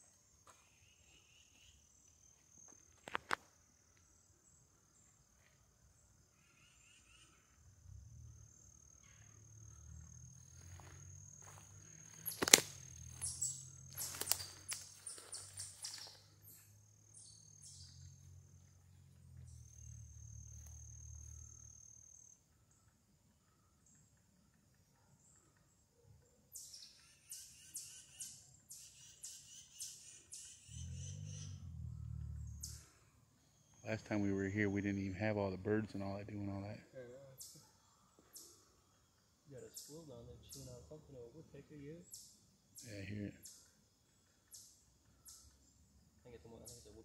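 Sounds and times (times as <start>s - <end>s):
bird chirps: 0.0s - 2.3s, 6.3s - 24.6s, 25.2s - 41.2s, 41.8s - 45.7s, 46.3s - 47.0s
insect trill: 0.0s - 47.0s
sharp clicks and crackles: 12.3s - 12.8s
low rumble: 30.7s - 32.9s.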